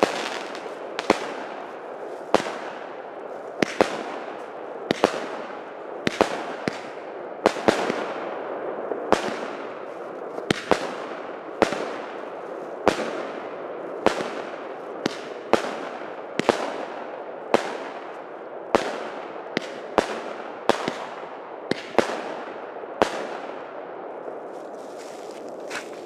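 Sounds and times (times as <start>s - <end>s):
firework bangs: 0.0s - 18.1s.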